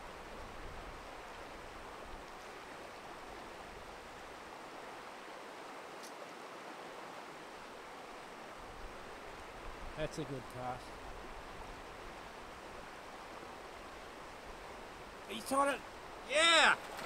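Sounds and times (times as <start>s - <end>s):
river rushing over riffles: 10.7s - 17.0s.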